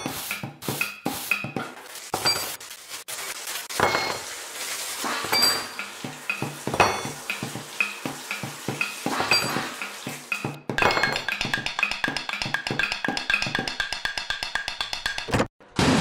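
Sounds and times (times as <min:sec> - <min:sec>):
dishes and utensils clinking: 0:00.0 - 0:02.7, 0:03.7 - 0:04.4, 0:05.0 - 0:15.4
faucet water into steel sink: 0:00.0 - 0:13.8.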